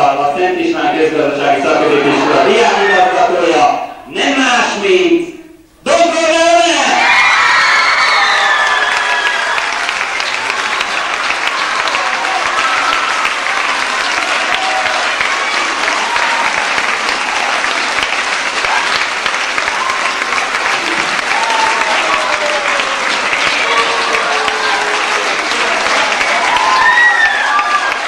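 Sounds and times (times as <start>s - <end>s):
audience applauding: 7.2s - 28.0s.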